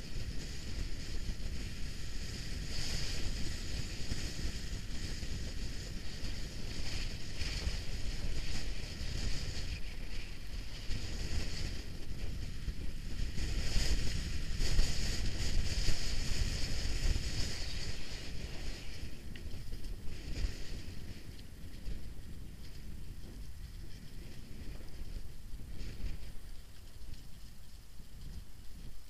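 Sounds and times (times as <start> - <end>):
bike tyres rattling over stones: 0.0 - 29.0
wind buffeting microphone: 0.0 - 29.0.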